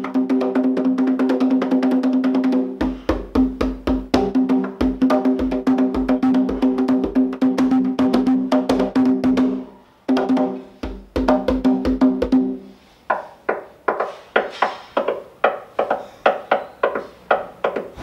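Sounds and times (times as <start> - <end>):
hand drum playing: 0.0 - 12.7.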